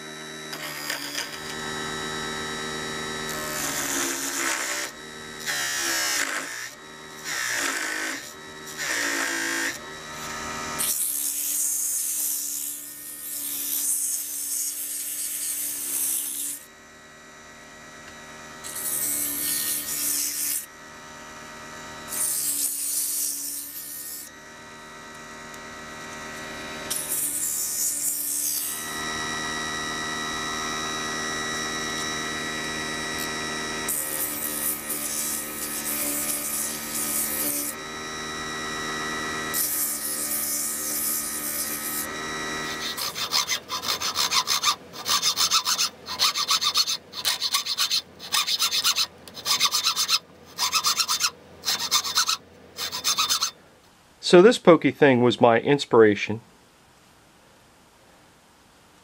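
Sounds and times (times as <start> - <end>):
lathe motor whine: 0.0 - 53.7
hacksaw strokes: 3.3 - 16.6, 18.6 - 20.7, 26.9 - 28.9, 33.9 - 37.8, 39.5 - 53.6
wire rubbing on spinning wood: 39.5 - 53.6.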